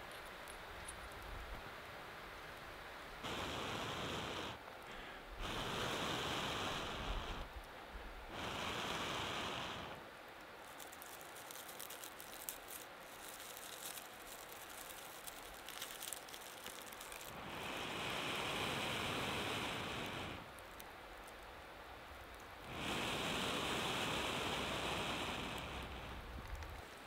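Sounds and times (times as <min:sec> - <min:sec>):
dry tinder rustling and crackling: 0:10.2 - 0:18.1, 0:18.7 - 0:22.8, 0:25.4 - 0:27.0.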